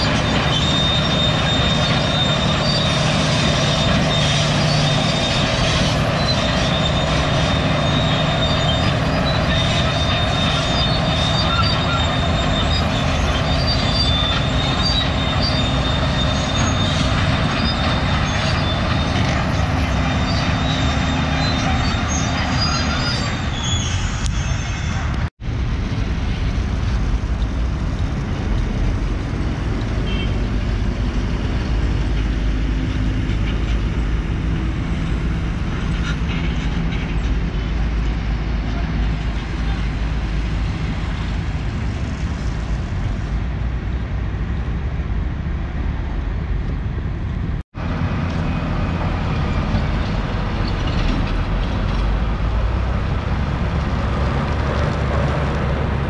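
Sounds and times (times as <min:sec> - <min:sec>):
road and wind rumble: 0:00.0 - 0:56.0.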